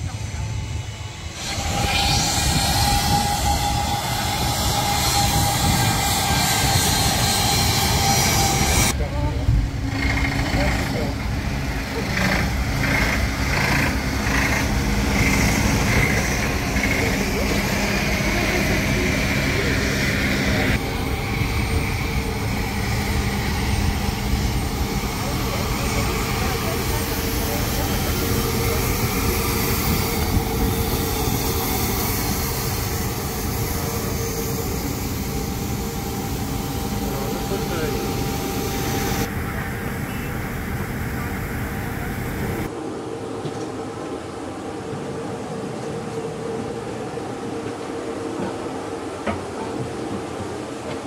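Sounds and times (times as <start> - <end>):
vehicle engine humming: 7.9 - 42.7.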